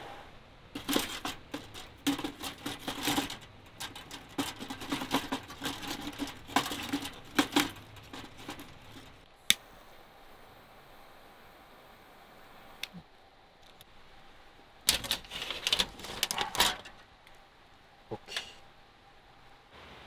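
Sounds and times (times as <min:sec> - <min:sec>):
objects knocking and rustling: 0:00.7 - 0:09.3, 0:14.9 - 0:17.1.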